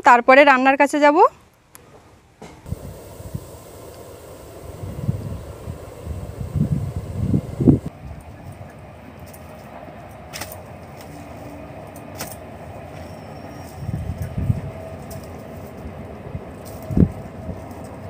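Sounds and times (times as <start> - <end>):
steady low rumble: 2.6 - 8.4.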